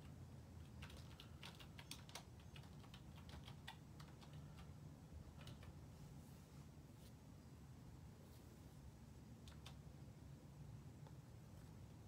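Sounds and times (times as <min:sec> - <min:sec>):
keyboard typing: 0:00.0 - 0:05.8, 0:09.4 - 0:09.9
low background hum: 0:00.0 - 0:12.0.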